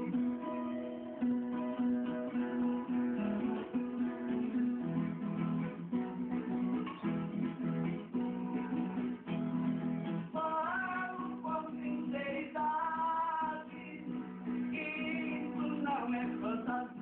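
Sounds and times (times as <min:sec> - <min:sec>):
acoustic guitar strumming: 0:00.0 - 0:17.0
person singing: 0:10.2 - 0:17.0.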